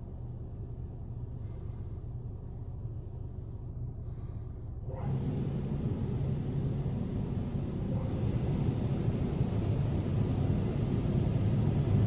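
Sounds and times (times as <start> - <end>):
car wash machinery rumble: 4.9 - 12.0.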